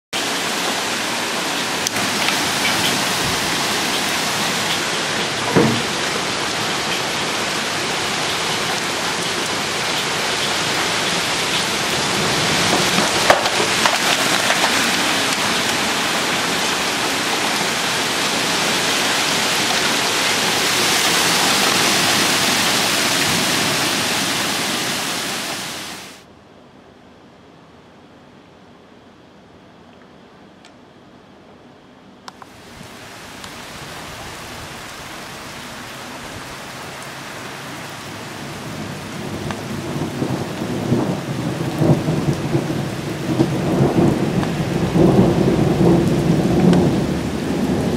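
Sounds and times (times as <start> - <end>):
hail and heavy rain pelting: 0.2 - 26.2, 32.5 - 47.9
hailstones knocking: 1.8 - 7.1, 8.6 - 23.5.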